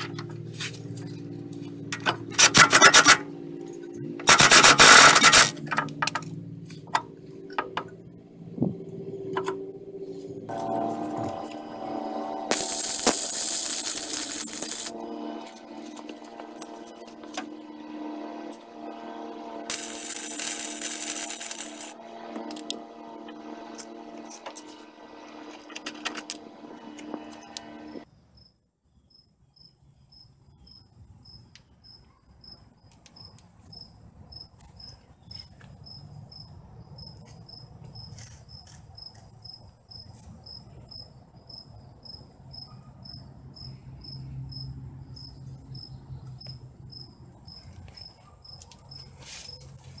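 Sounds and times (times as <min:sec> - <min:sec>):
humming scraping sound with clicks: 0:00.0 - 0:28.0
cricket chirping: 0:28.0 - 0:50.0.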